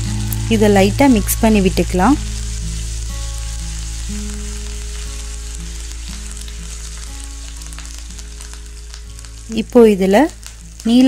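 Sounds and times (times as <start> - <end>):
spices sizzling in hot oil: 0.0 - 11.0.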